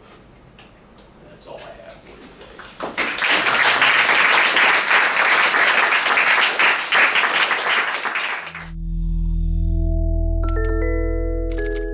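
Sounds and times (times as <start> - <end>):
audience applauding: 2.6 - 8.7.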